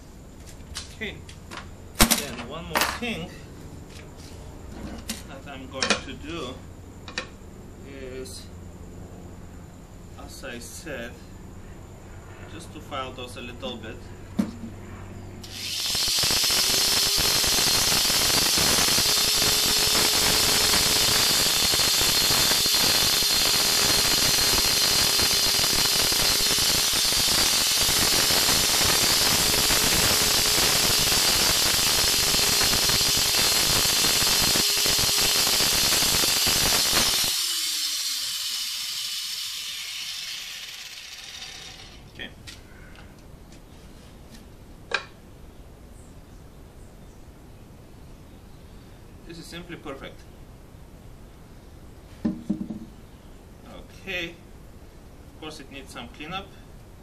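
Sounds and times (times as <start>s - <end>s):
grinder disc winding down: 15.4s - 42.2s
angle grinder grinding plastic: 15.5s - 42.1s.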